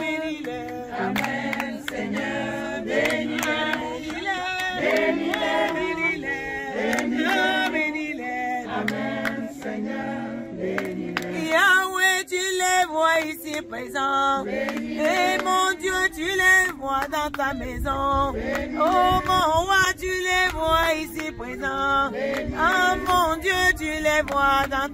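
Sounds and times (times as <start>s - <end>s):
choir singing gospel song: 0.0s - 24.9s
high woman's voice singing: 15.0s - 22.0s.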